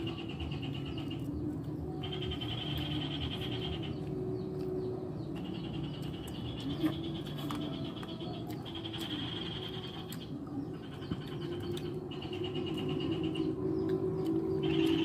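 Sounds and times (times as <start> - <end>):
frog pulsing trill: 6.8 - 13.9.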